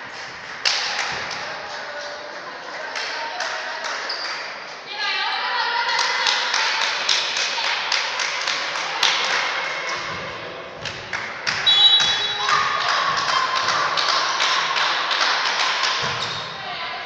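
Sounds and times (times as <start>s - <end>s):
short high whistle: 11.6s - 12.4s.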